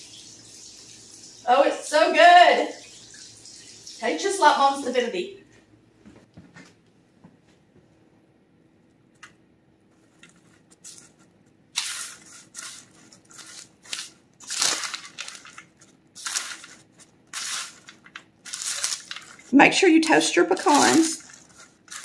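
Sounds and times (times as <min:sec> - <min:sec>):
nuts crunching on parchment paper: 0:11.8 - 0:22.0.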